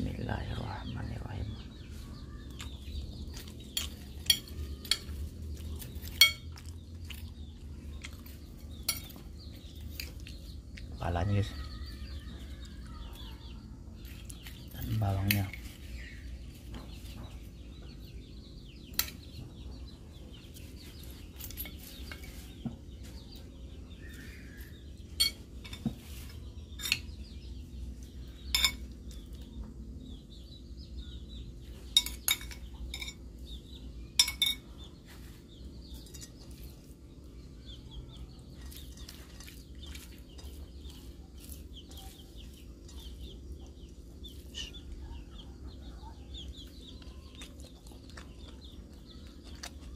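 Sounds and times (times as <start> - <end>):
utensils clinking on plate: 3.3 - 7.3, 8.0 - 9.2, 21.3 - 22.6, 25.1 - 27.3, 28.4 - 29.3, 31.9 - 33.4, 34.1 - 34.8, 36.0 - 36.7, 38.4 - 40.6.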